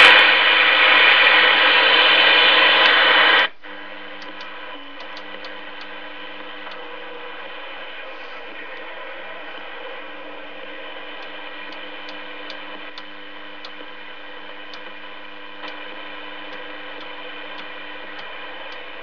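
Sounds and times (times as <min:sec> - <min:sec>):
radio receiver hiss and hum: 0:00.0 - 0:19.0.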